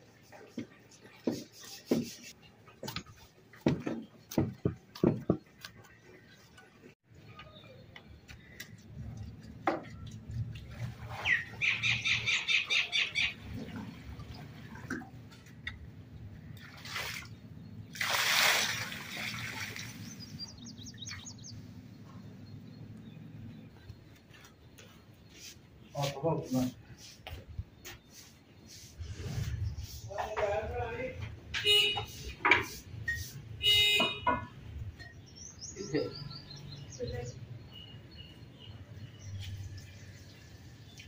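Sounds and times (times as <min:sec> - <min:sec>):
birds chirping: 0:04.0 - 0:18.0, 0:18.8 - 0:41.0
water pouring and splashing: 0:09.9 - 0:11.9, 0:13.3 - 0:15.7, 0:16.5 - 0:21.0.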